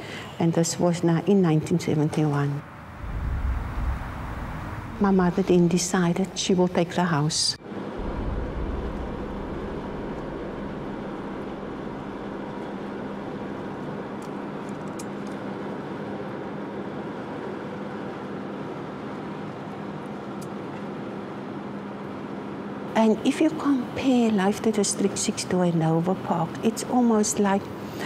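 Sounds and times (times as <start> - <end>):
car road and engine noise: 2.6 - 5.6.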